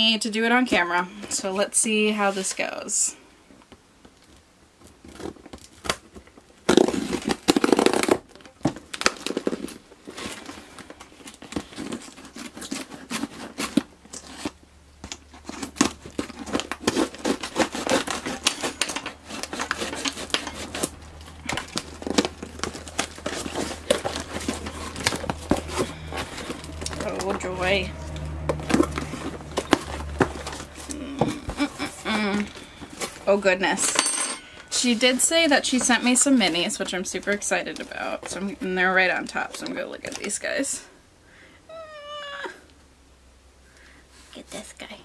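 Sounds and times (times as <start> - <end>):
packaging crinkling and rustling: 3.6 - 33.8, 34.5 - 40.6
cardboard box ripping: 5.0 - 33.4.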